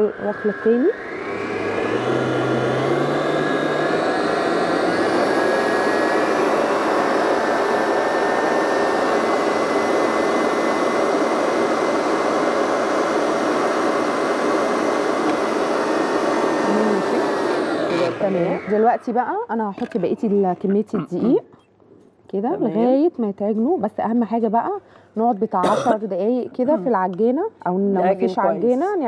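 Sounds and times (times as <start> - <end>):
stand mixer motor whining: 0.0 - 19.2.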